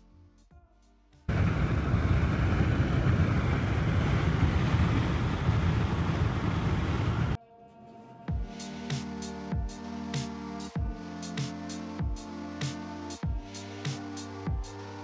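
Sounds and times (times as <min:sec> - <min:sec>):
car cabin road and engine rumble: 0:01.3 - 0:07.4.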